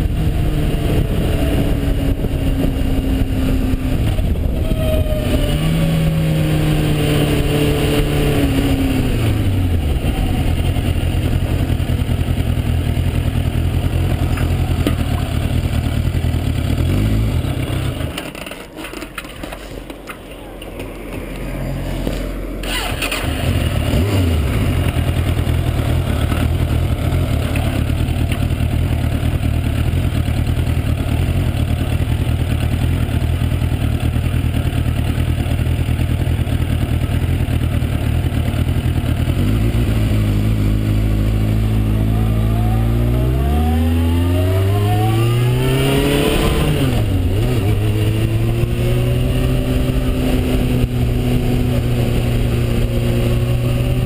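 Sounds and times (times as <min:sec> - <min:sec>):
motorcycle engine idling and revving: 0:00.0 - 0:54.0.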